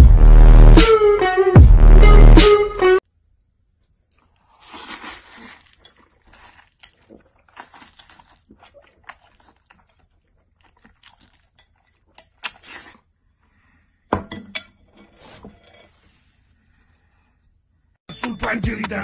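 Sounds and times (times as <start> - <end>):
chewing: 3.2 - 13.6
slurping: 3.3 - 13.9.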